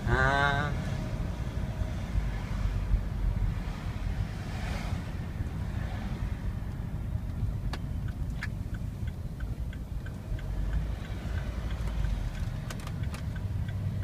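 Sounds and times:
car rumbling while moving: 0:00.0 - 0:14.0
turn signal ticking: 0:05.1 - 0:14.0.

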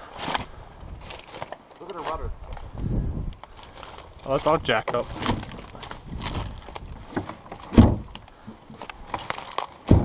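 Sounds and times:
heavy thump: 0:07.1 - 0:08.2.

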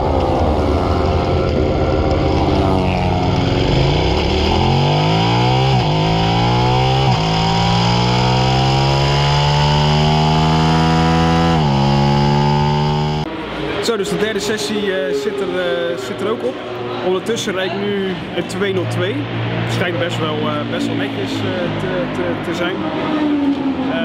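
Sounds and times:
motorcycle engine accelerating: 0:00.0 - 0:13.3.

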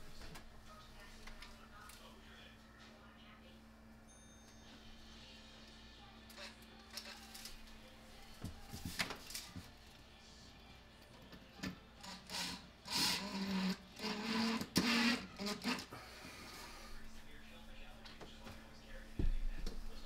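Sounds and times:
cordless drill drilling into wood: 0:12.3 - 0:15.9.

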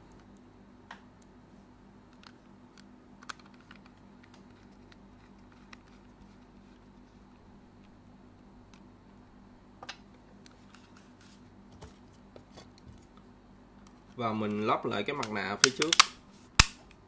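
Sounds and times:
low steady hum: 0:00.0 - 0:17.0
plastic controller parts clicking: 0:03.2 - 0:06.0, 0:15.2 - 0:16.7.

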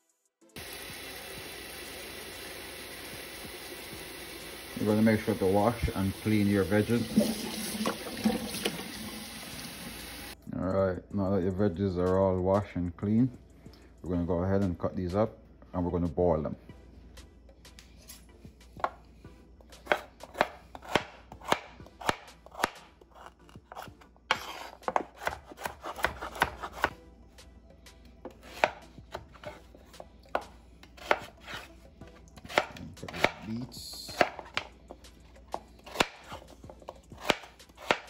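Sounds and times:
knife striking cutting board: 0:30.3 - 0:31.7, 0:34.1 - 0:34.7.

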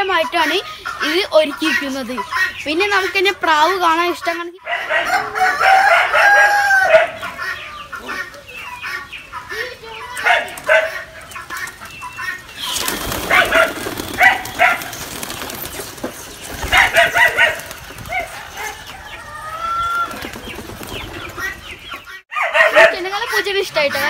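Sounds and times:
chickens clucking: 0:00.0 - 0:24.0
pigeon wings flapping: 0:12.5 - 0:18.7, 0:19.9 - 0:21.6.

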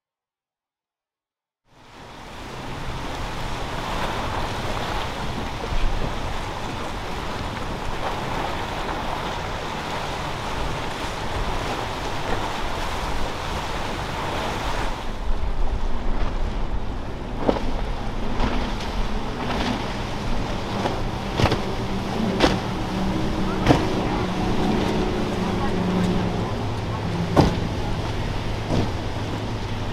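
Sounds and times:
surf and rushing water: 0:01.7 - 0:29.9
wind buffeting microphone: 0:02.5 - 0:29.9
faint low engine hum: 0:15.9 - 0:29.9
sharp knocks: 0:27.3 - 0:27.7.

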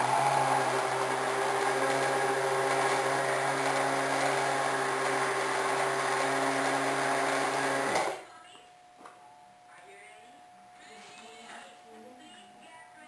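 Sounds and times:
blender motor whirring: 0:00.0 - 0:08.2.

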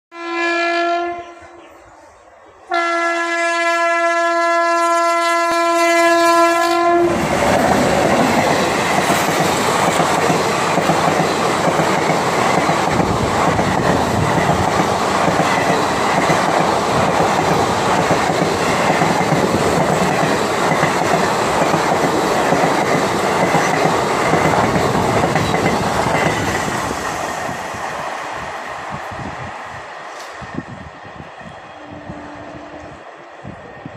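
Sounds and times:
train horn blasts: 0:00.1 - 0:01.7, 0:02.7 - 0:07.2, 0:31.7 - 0:33.0
train wheels on rails: 0:05.2 - 0:33.9.

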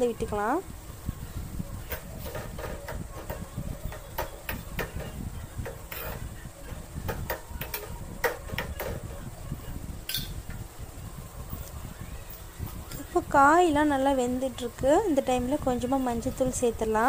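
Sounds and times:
metal spoon scraping a pot: 0:01.9 - 0:06.3.

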